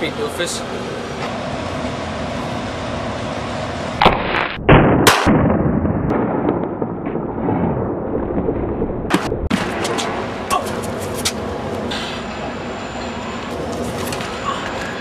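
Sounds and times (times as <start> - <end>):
steady background noise: 0.0 - 5.3, 9.1 - 15.0
shotgun blasts: 4.0 - 7.8.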